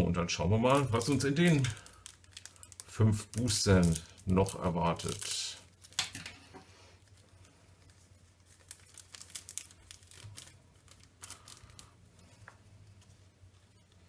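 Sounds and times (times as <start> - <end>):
foil pack tearing and crinkling: 0.7 - 6.4, 7.0 - 12.0.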